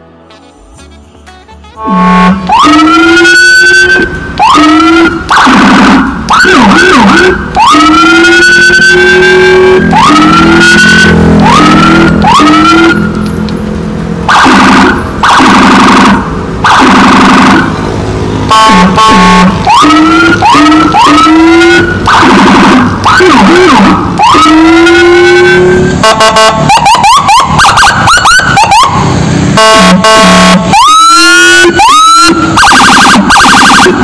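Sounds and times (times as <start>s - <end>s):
electronic siren tones: 1.8s - 13.3s, 14.2s - 34.0s.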